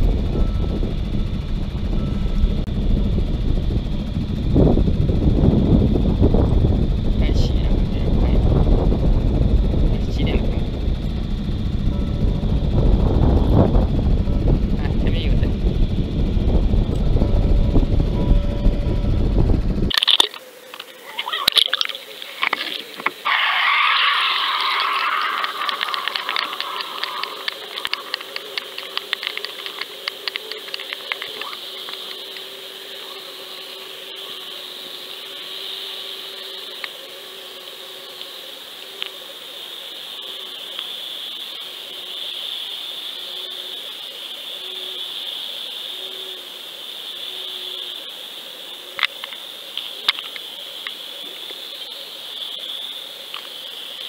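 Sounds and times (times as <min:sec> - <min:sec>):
faint low hum: 0:00.0 - 0:23.3
faint steady hum: 0:00.0 - 0:54.0
underwater rush of water: 0:19.9 - 0:31.9
sharp clicks: 0:24.2 - 0:32.5.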